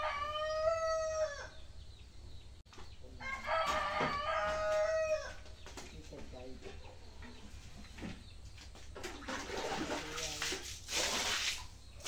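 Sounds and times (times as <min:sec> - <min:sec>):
rooster crowing: 0:00.0 - 0:01.6, 0:03.2 - 0:05.4.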